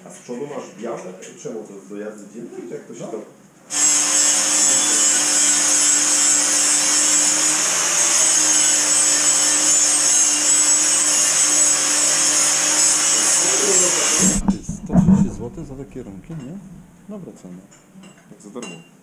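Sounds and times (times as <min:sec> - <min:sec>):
electric power tool running: 0:03.7 - 0:14.7.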